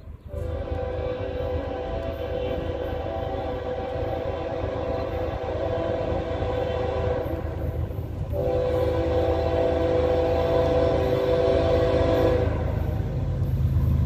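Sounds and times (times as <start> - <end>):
locomotive air horn: 0.3 - 13.2.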